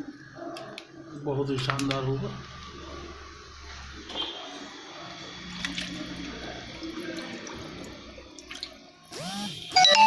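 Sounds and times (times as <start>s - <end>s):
water pouring and splashing: 5.4s - 9.0s.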